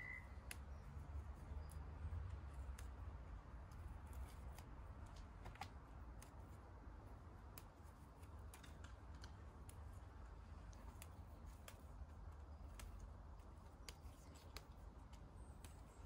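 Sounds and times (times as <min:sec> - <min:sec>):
mint stems snapping: 0:00.4 - 0:00.9, 0:01.5 - 0:16.0.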